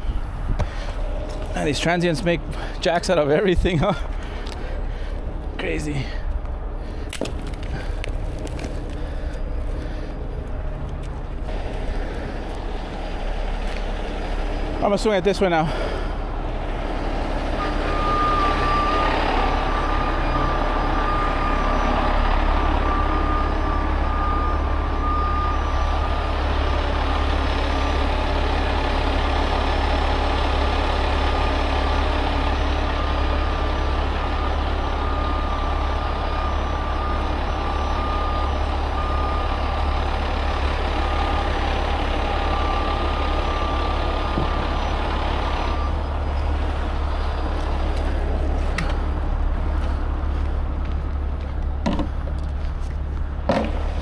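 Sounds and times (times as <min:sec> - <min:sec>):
diesel engine running: 0:00.0 - 0:54.0
truck warning beeper: 0:11.4 - 0:50.1.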